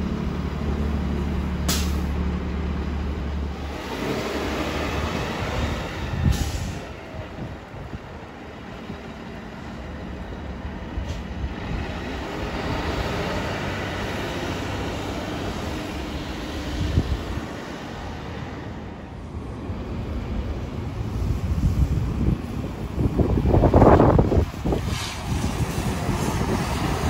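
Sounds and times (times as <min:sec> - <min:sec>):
bus passing: 0:00.0 - 0:27.0
sharp thump: 0:01.7 - 0:02.1.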